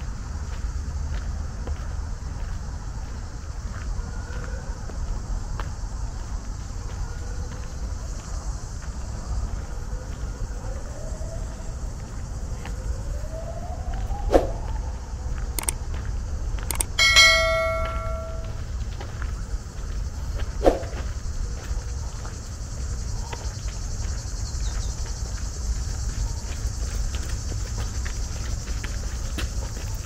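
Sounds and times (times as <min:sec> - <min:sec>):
sharp clicks: 0:15.6 - 0:15.8, 0:16.6 - 0:18.4
bell strike ringing: 0:17.0 - 0:18.6.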